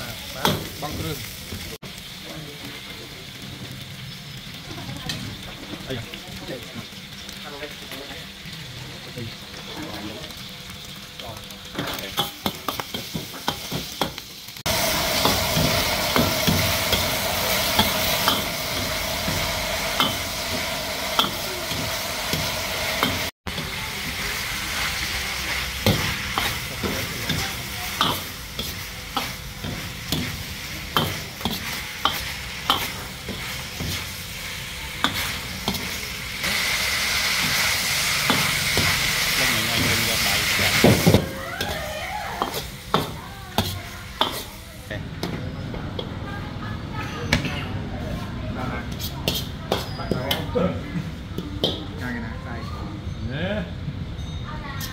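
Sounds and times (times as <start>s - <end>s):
oil sizzling in a wok: 0.0s - 52.5s
steel ladle scraping a wok: 42.4s - 43.0s, 43.6s - 44.6s, 48.9s - 50.5s.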